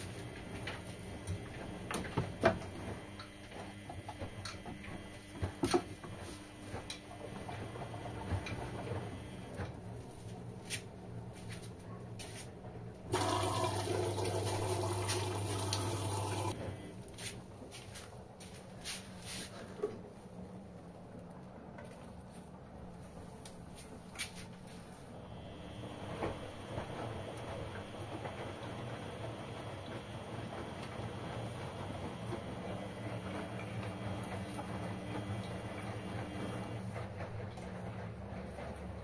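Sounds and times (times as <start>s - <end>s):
washing machine drum tumbling: 0.0s - 10.6s, 13.1s - 16.8s, 25.6s - 39.0s
water rushing through machine: 13.1s - 16.6s.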